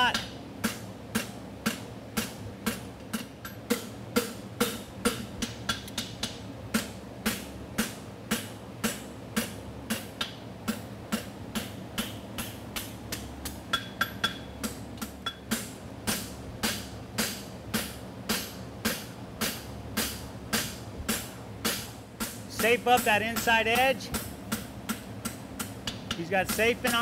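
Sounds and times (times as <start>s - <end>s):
cooler fan humming: 0.0s - 27.0s
hammer striking steel on anvil: 0.0s - 27.0s.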